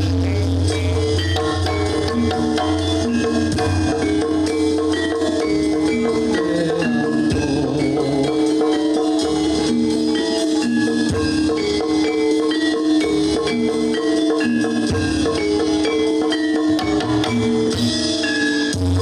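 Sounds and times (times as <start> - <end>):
low bass notes: 0.0 - 9.6
drums: 0.0 - 19.0
struck metallophone notes: 0.0 - 19.0.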